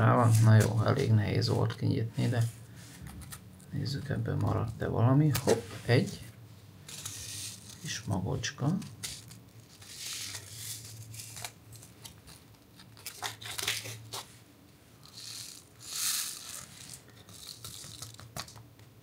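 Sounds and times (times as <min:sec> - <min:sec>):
foil pouch crinkling: 0:08.7 - 0:14.4.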